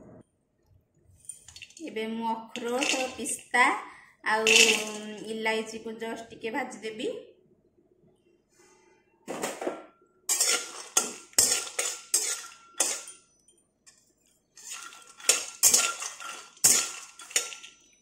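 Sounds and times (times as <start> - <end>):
metal spatula scraping nuts in pan: 2.6 - 3.3, 10.3 - 13.2, 14.5 - 17.9.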